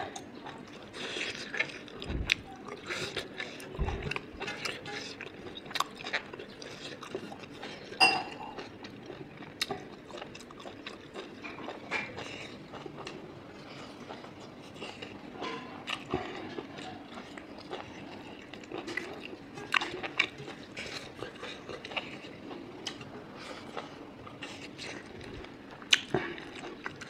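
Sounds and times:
eating and chewing: 0:00.0 - 0:27.0
low thuds: 0:02.0 - 0:02.4.

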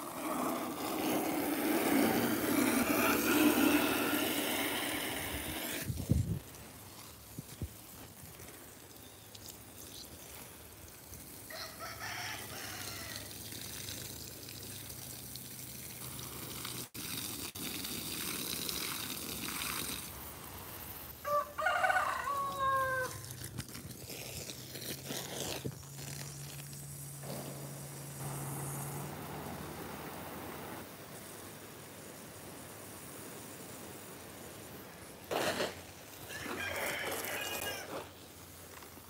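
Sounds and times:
garden hose spraying water: 0:00.0 - 0:39.0
rooster crowing: 0:11.5 - 0:13.3, 0:21.2 - 0:23.2, 0:36.2 - 0:38.1.

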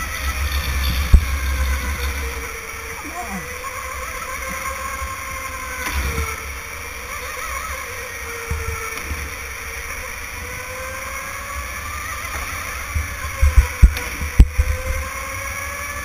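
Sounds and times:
electric go-kart motor whining: 0:00.0 - 0:16.0
low rumble of kart on track: 0:00.0 - 0:16.0.

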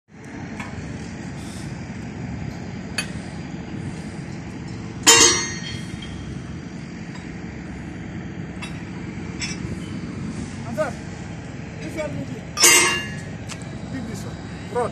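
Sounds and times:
machinery low hum: 0:00.1 - 0:14.9
steel striking steel clank: 0:04.7 - 0:06.2, 0:12.6 - 0:13.2.

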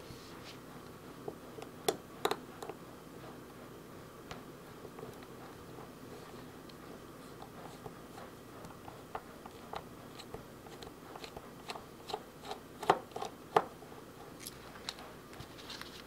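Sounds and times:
parts handled on a work mat: 0:14.3 - 0:16.0.

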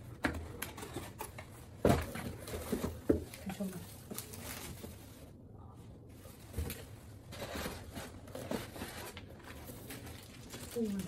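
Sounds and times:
plastic packaging rustling: 0:00.5 - 0:11.0
cardboard boxes scraping: 0:06.7 - 0:09.7.

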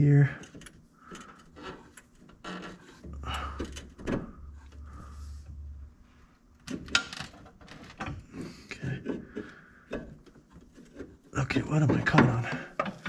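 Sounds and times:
low steady hum: 0:00.0 - 0:13.0
engine mount clunking and knocking: 0:01.2 - 0:04.9, 0:09.0 - 0:13.0.

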